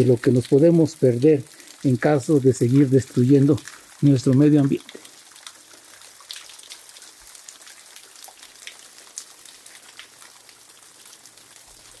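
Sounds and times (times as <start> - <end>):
waterfall hiss: 0.0 - 8.2.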